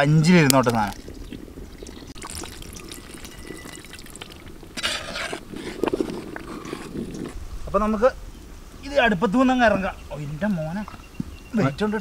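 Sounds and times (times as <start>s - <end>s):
liquid trickling into metal pot: 0.4s - 5.9s
ladle stirring thick mixture: 0.5s - 7.4s
liquid sloshing: 0.5s - 7.4s.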